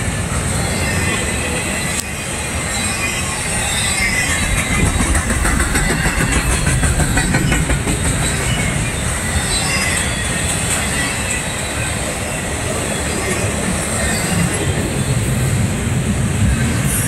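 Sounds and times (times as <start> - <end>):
freight train low rumble: 0.0 - 17.0
wheels clattering over rail joints: 3.2 - 11.7.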